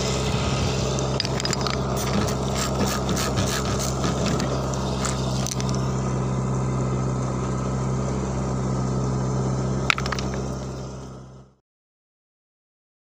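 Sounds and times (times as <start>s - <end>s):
engine droning: 0.0s - 11.6s.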